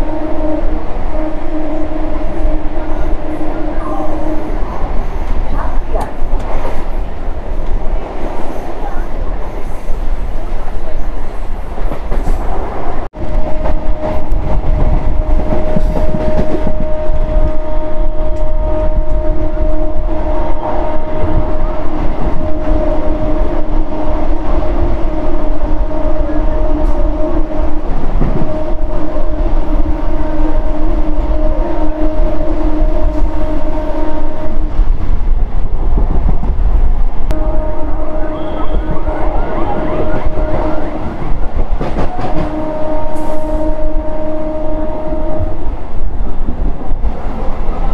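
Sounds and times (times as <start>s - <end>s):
train horn blast: 0.0s - 5.2s, 13.2s - 34.7s, 37.3s - 45.7s
train rumble and wheel clatter: 0.0s - 47.9s.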